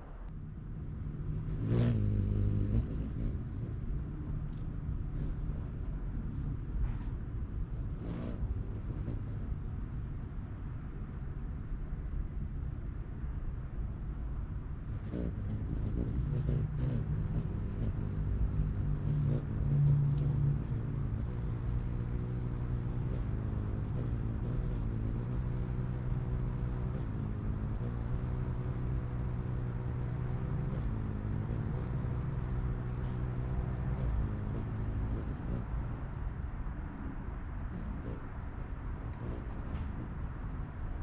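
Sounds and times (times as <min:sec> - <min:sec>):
motor humming: 0:14.9 - 0:36.0.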